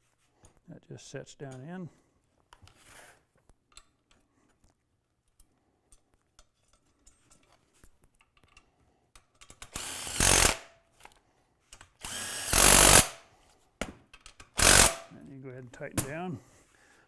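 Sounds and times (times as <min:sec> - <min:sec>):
cordless drill driving a bolt: 0:09.6 - 0:10.7, 0:12.0 - 0:13.2, 0:14.6 - 0:15.0.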